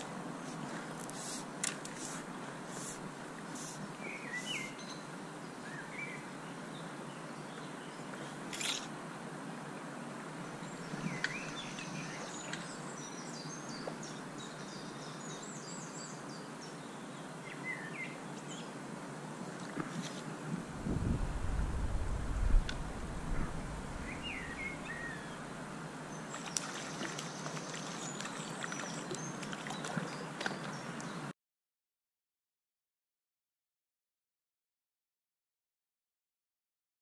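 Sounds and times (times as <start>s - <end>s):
river water rushing: 21.4s - 31.0s
small birds chirping: 24.0s - 25.5s, 26.1s - 31.3s.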